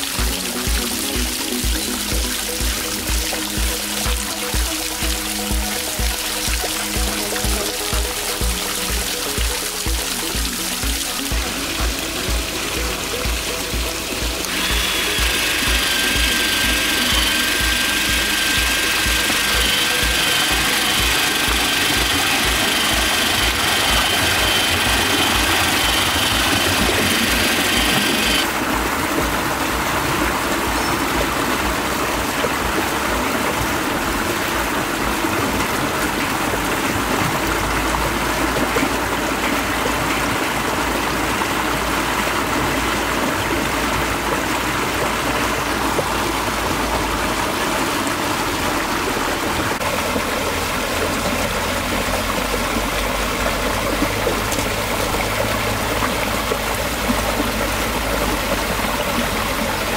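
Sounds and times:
water rushing over spillway: 0:00.0 - 0:59.9
steady high-pitched tones: 0:11.4 - 0:28.5.

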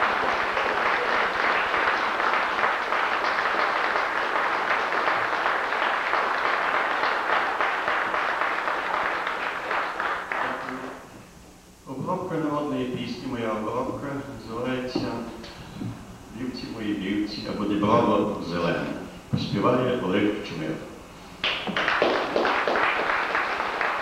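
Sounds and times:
audience applauding: 0:00.0 - 0:11.0, 0:21.4 - 0:24.0.

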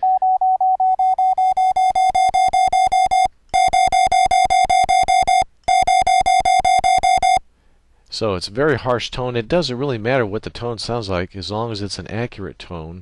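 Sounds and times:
harsh morse code beeps: 0:00.0 - 0:07.4.

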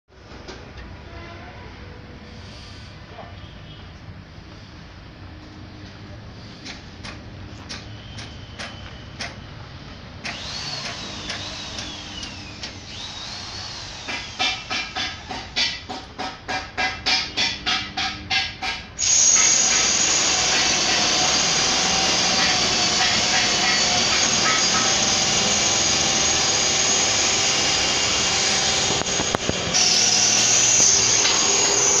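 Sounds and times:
power tool whine: 0:10.2 - 0:15.4, 0:19.0 - 0:32.0
sharp knocks: 0:14.1 - 0:18.9.

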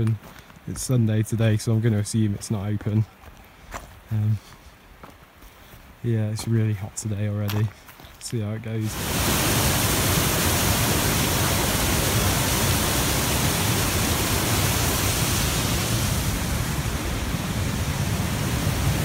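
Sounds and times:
waterfall rushing: 0:08.8 - 0:19.0.

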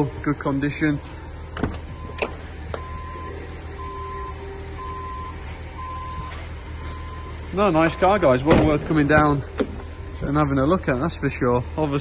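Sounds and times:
car warning chime beeping: 0:01.8 - 0:08.5.

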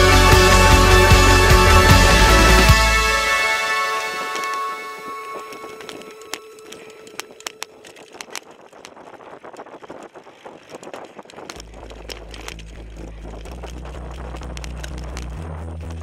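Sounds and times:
electronic music with deep bass: 0:00.0 - 0:06.5, 0:11.6 - 0:16.0
mountain bike rattling on trail: 0:03.6 - 0:16.0.

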